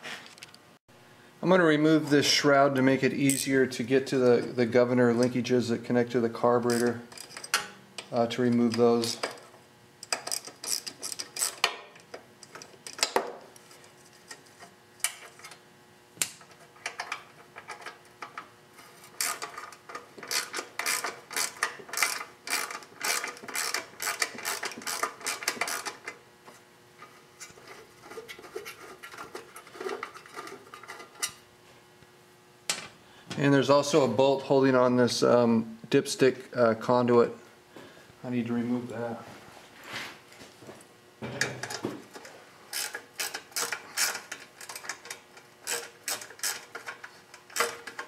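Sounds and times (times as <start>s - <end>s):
ratchet wrench clicking: 6.7s - 7.5s, 10.0s - 11.7s, 19.2s - 26.0s, 42.7s - 45.0s.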